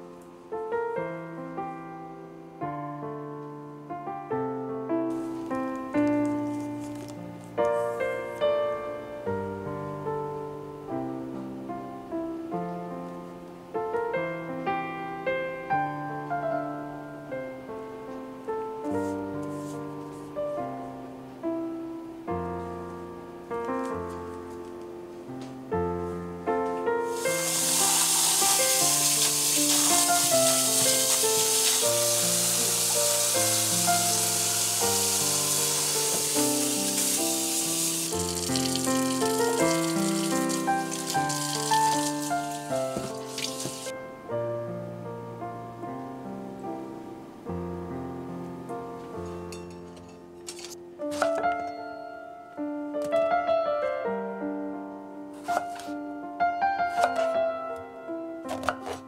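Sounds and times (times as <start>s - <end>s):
slow gentle piano music: 0.0s - 59.0s
tap water splashing in sink: 38.1s - 43.9s.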